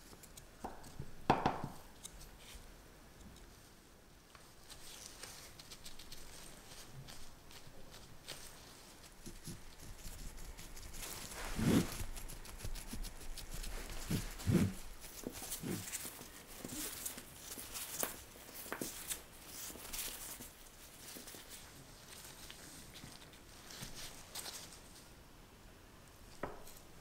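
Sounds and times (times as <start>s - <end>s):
glove rustling: 4.7s - 24.9s.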